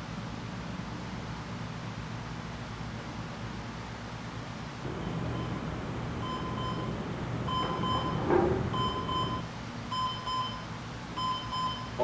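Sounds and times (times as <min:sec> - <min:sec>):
alarm clock beeping: 0:04.9 - 0:10.6.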